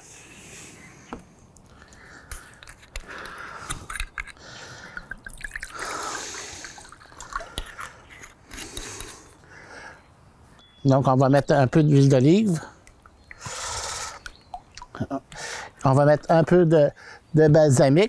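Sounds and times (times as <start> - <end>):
bottles clicking and knocking: 2.3 - 6.0, 6.6 - 9.2
wine pouring into glass bowl: 5.0 - 7.8.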